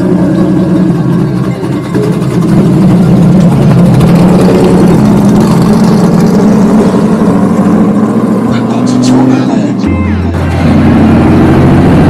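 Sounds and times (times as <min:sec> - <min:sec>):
car engine rumbling: 0:00.0 - 0:12.0.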